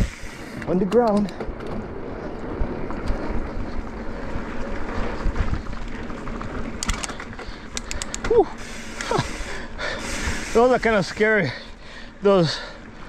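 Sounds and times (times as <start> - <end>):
bike tyres rumbling on dirt: 0.0 - 13.0
sharp clicks: 6.7 - 8.3
bike frame chattering: 6.7 - 9.6.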